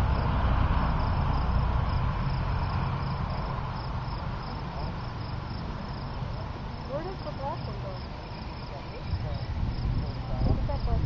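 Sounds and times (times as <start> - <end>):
low rumble: 0.0 - 6.4
crickets chirping: 0.0 - 11.0.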